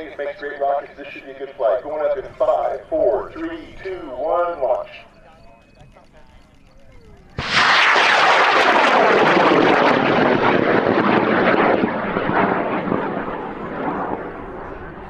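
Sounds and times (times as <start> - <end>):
rocket motor crackling roar: 5.9 - 15.0.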